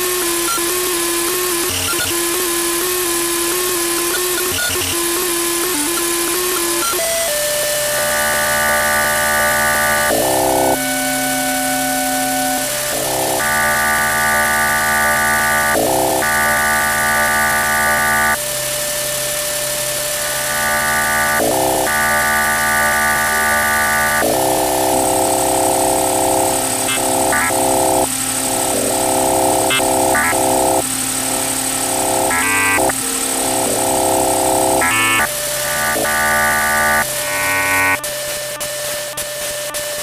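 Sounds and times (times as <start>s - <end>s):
electronic keyboard tones: 4.0s - 18.4s, 20.2s - 38.6s
low electronic drone: 20.2s - 38.0s.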